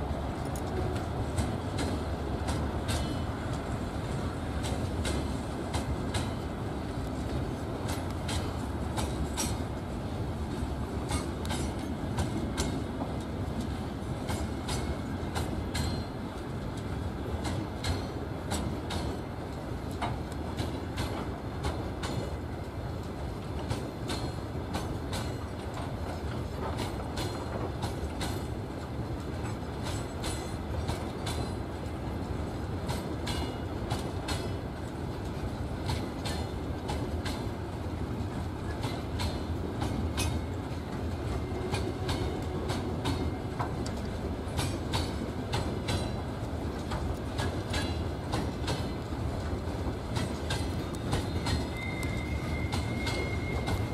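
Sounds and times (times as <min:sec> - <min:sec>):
freight train rumbling past: 0:00.0 - 0:53.9
wheels clicking on track: 0:00.0 - 0:53.9.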